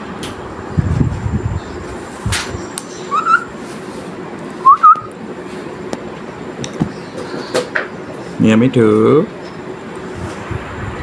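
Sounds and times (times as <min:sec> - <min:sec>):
cockatiel whistling: 0:03.1 - 0:03.5, 0:04.6 - 0:05.1.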